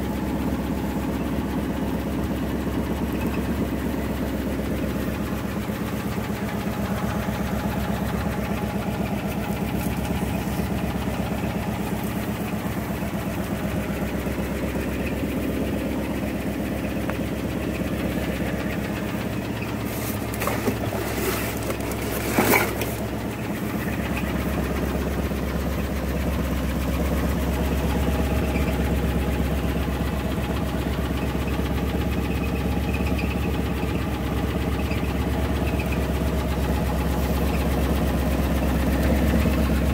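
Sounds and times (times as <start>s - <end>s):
truck engine idling: 0.0s - 39.9s
sharp knocks and clatter: 19.5s - 23.2s.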